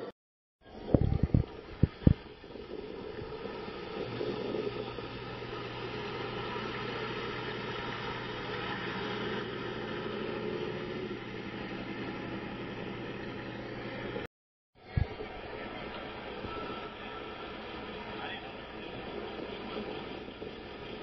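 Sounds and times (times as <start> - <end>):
low even hum: 0.0 - 21.0
outdoor background din: 4.5 - 21.0.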